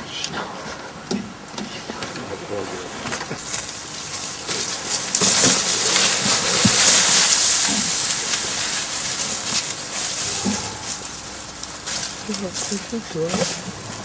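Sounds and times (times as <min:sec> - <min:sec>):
elephant pushing through dry bush: 0:03.0 - 0:14.0.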